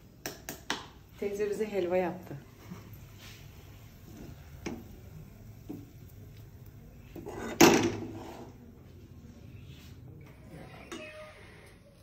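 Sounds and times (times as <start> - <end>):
metal spoon scraping a pan: 7.1 - 8.6.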